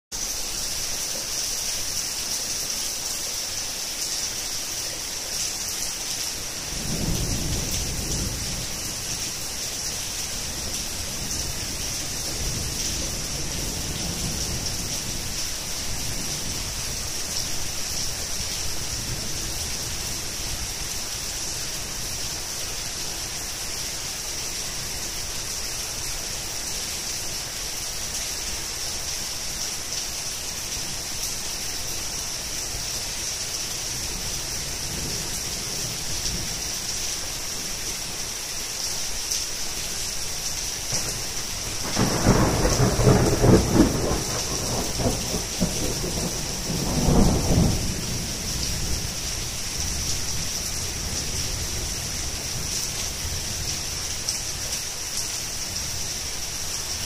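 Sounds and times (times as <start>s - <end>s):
heavy rain: 0.1s - 57.0s
thunder rumbling: 6.7s - 9.1s, 40.9s - 50.2s.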